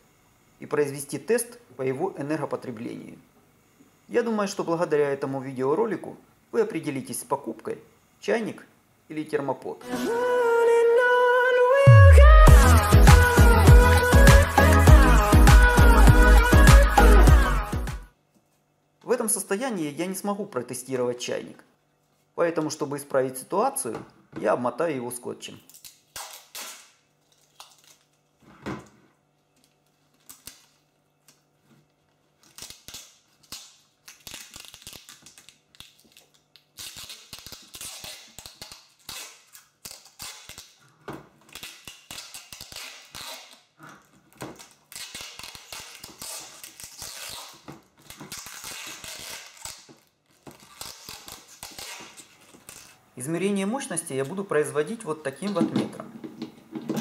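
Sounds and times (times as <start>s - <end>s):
adhesive tape ripping and crackling: 25.7s - 28.4s, 29.6s - 53.0s.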